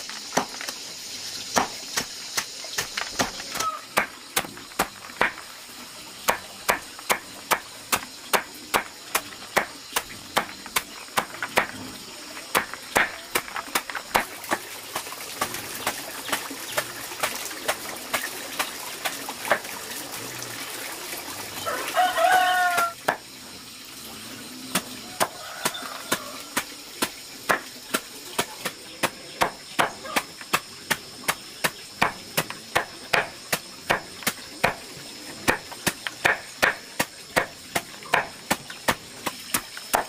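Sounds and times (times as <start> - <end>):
animal call: 3.5 - 4.0
knife chopping on wooden board: 6.3 - 11.8, 12.5 - 14.6, 24.8 - 34.8, 35.5 - 39.0, 39.6 - 40.0.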